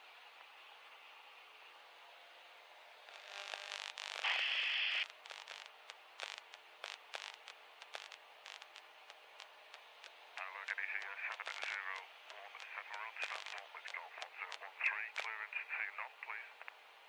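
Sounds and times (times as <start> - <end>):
sharp static crackles: 3.0 - 16.8
loud burst of static: 3.1 - 16.1
radio static hiss: 3.1 - 16.8.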